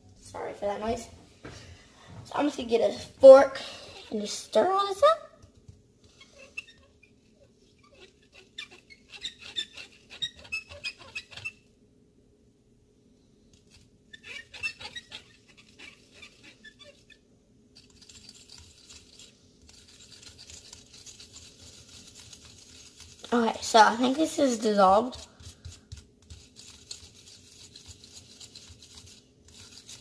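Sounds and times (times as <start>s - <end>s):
fork stirring in a cup: 6.0s - 11.6s, 17.8s - 30.0s.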